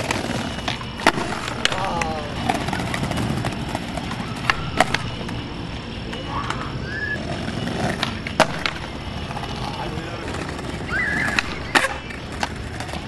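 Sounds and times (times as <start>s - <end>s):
skateboard landing clacks: 0.0s - 5.4s, 7.6s - 9.6s, 10.3s - 13.0s
skateboard wheels rolling on paving: 0.0s - 13.0s.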